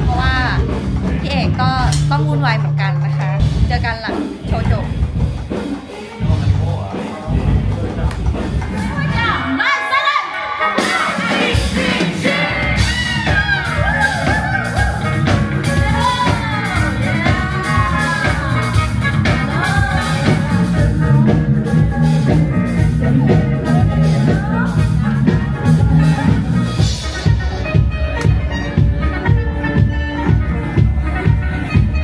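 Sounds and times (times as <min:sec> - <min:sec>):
steady drum beat: 0:00.0 - 0:09.5, 0:10.8 - 0:32.0
pop-rock band playing: 0:00.0 - 0:32.0
person singing: 0:10.5 - 0:27.4.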